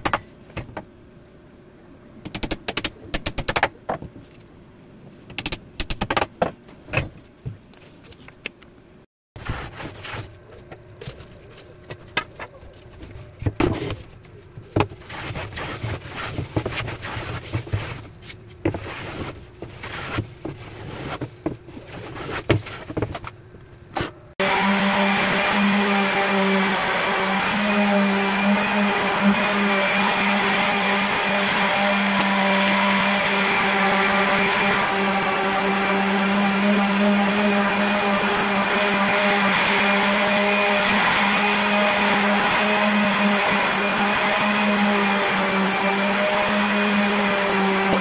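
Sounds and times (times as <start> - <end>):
electric palm sander running: 24.4 - 48.0.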